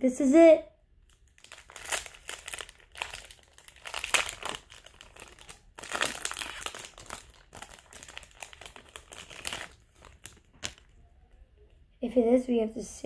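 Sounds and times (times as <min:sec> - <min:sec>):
wrapper crinkling: 0:01.0 - 0:11.0.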